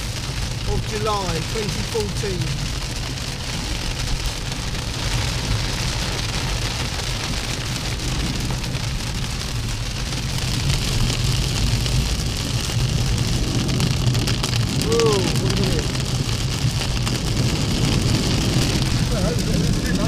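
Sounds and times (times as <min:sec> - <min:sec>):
car driving hum: 0:00.0 - 0:20.0
heavy rain on car roof: 0:00.0 - 0:20.0.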